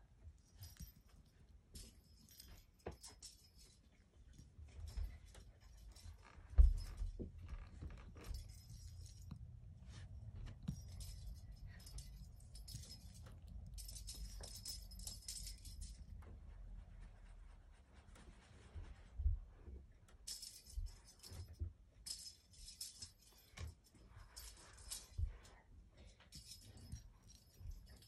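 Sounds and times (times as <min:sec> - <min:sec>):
bell jingling in toy ball: 0:08.2 - 0:16.2.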